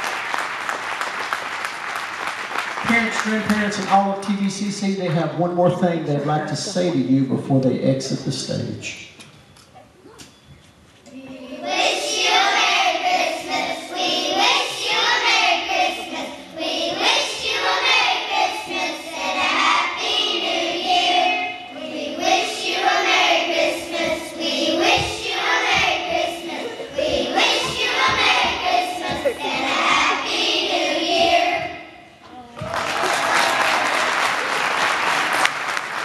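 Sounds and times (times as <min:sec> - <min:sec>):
children's choir singing: 0:11.1 - 0:32.0.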